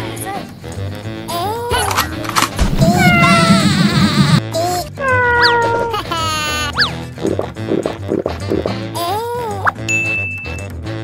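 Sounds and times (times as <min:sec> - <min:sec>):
music: 0:00.0 - 0:11.0
cartoon sound effects: 0:01.7 - 0:04.4, 0:05.0 - 0:07.0
falling pitched tone: 0:02.7 - 0:04.4.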